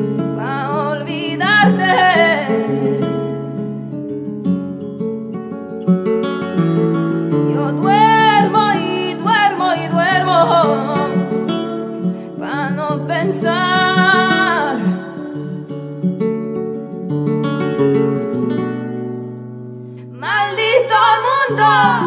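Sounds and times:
acoustic guitar picking: 0.0s - 22.0s
person singing: 0.4s - 3.3s, 7.5s - 11.4s, 12.4s - 15.2s, 20.1s - 22.0s.

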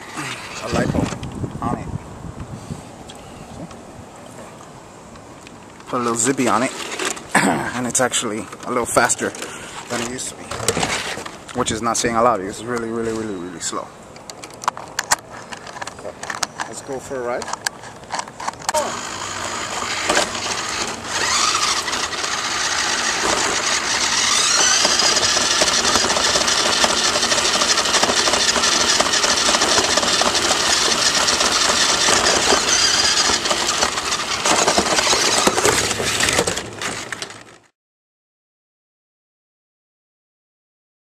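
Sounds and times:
toy truck motor whining: 0.0s - 0.9s, 18.7s - 37.5s
rattle on rough surface: 0.0s - 1.4s, 5.7s - 7.4s, 8.3s - 11.6s, 14.2s - 37.7s.

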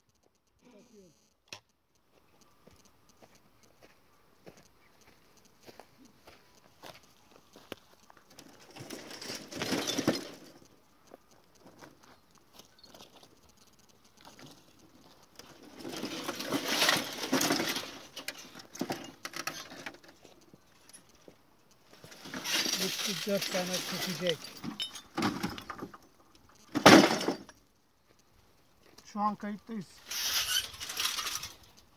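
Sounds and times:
rustling in dry grass: 2.0s - 9.7s, 10.3s - 18.8s, 19.5s - 24.6s, 29.8s - 31.9s.

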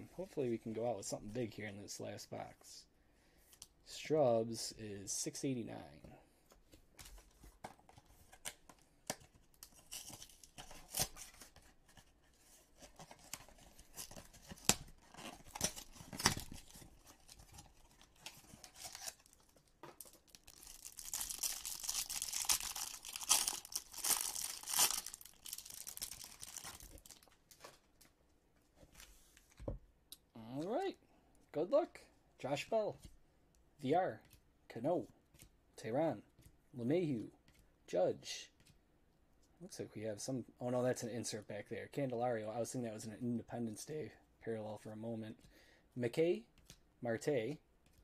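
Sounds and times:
wrapper tearing and crinkling: 13.0s - 27.4s.

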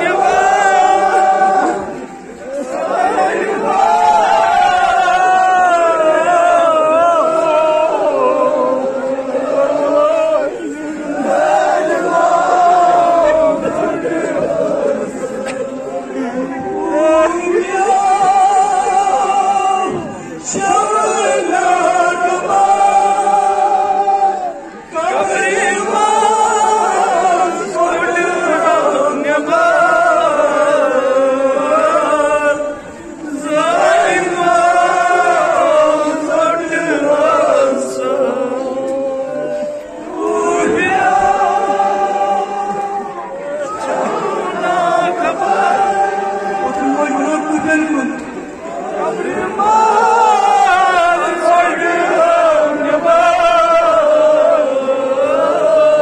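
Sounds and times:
men chanting a lament: 0.0s - 56.0s
man chanting a lament: 46.5s - 48.4s.

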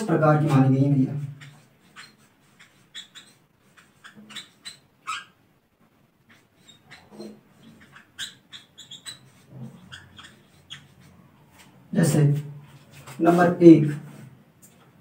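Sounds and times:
marker squeaking on whiteboard: 0.0s - 15.0s.

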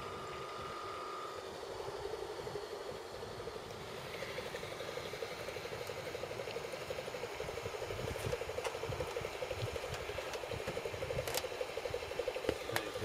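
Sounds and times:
model steamer rapid pulsing: 0.0s - 13.0s.

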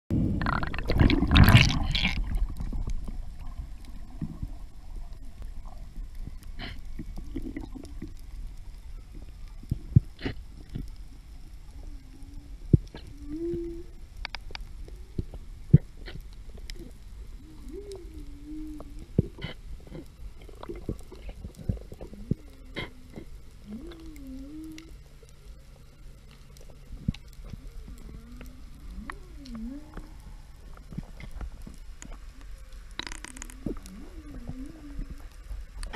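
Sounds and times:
underwater rush of bubbles: 0.2s - 8.4s
underwater murmur: 0.3s - 35.9s
sharp underwater clicks: 12.7s - 16.9s, 26.2s - 35.9s.

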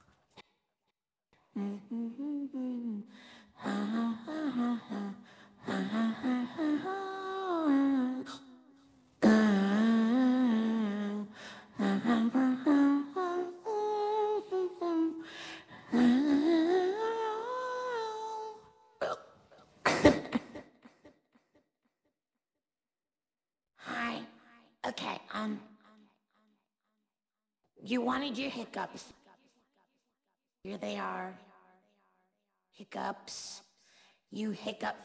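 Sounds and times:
woman humming a melody: 1.6s - 8.6s, 9.2s - 15.2s, 15.9s - 18.8s
woman hiccuping: 19.0s - 20.3s.

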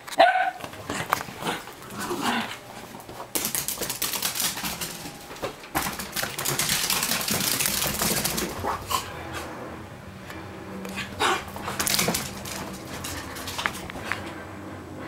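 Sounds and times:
dog claws scrabbling on wood floor: 2.9s - 8.8s, 11.6s - 14.3s.

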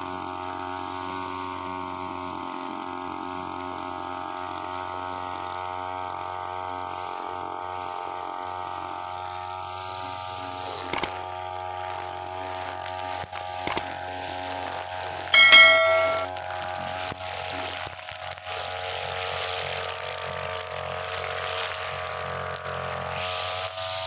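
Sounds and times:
notification bell chime: 15.4s - 16.3s.

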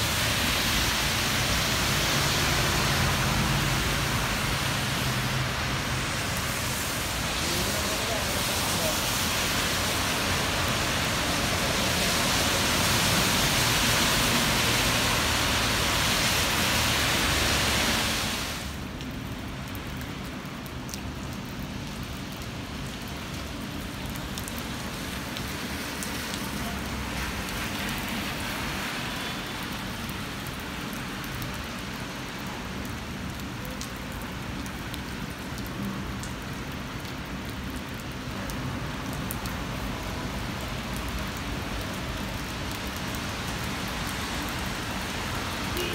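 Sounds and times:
rain falling on pavement: 0.0s - 45.9s
individual raindrop ticks: 18.9s - 28.2s, 29.6s - 45.9s.

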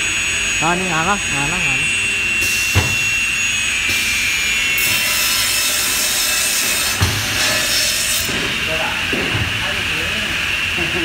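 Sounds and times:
saw cutting through wood: 2.4s - 10.6s
thump: 2.8s - 3.0s.

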